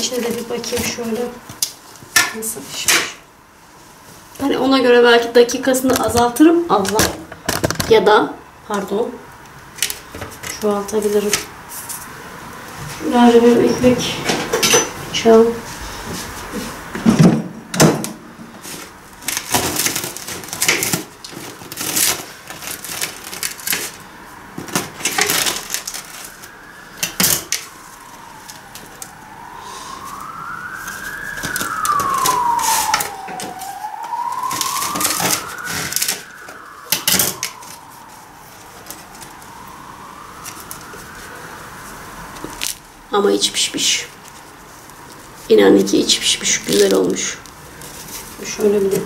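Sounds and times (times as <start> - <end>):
siren wailing: 10.5 - 49.0.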